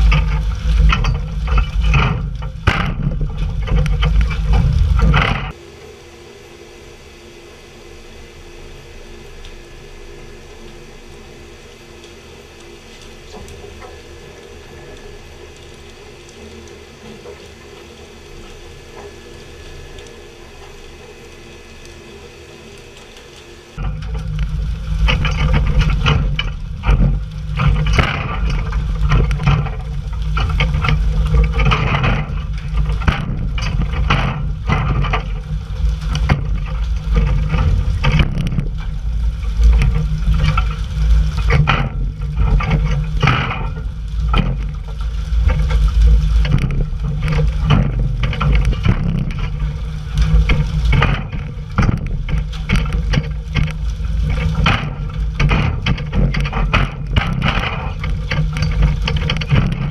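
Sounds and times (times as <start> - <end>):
boat engine hum: 0.0 - 59.9
water rushing and splashing: 0.0 - 59.9.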